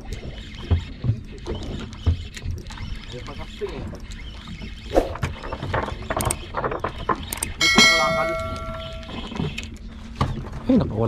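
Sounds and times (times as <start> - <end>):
bright bell chime: 7.6 - 9.2.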